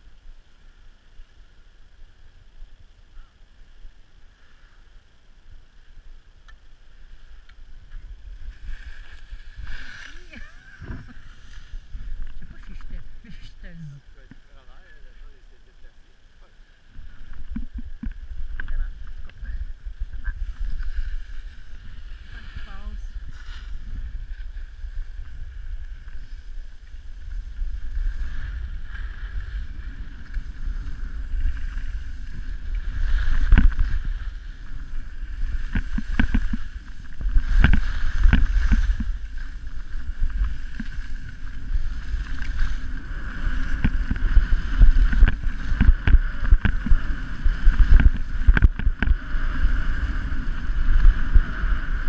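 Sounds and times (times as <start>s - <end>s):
low wind rumble: 0.0s - 52.0s
skis scraping on snow: 6.8s - 13.8s, 16.6s - 52.0s
skis knocking over bumps: 35.6s - 42.8s.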